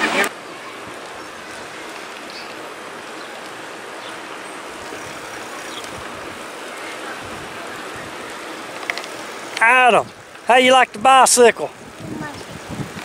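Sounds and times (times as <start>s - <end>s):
rushing wind and road noise: 0.0s - 13.0s
wind buffeting microphone: 7.1s - 8.4s, 11.7s - 13.0s.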